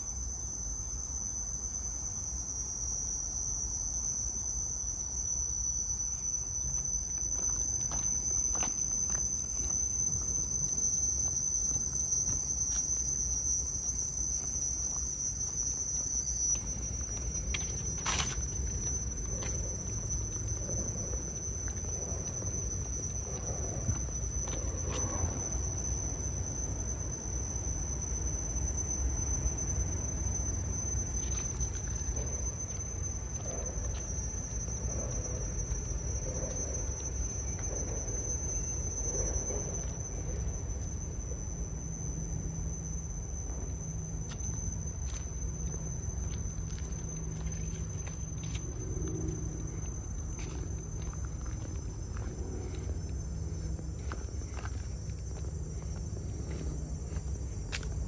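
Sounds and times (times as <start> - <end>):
insects droning: 0.0 - 58.0
low rumble: 16.6 - 26.8.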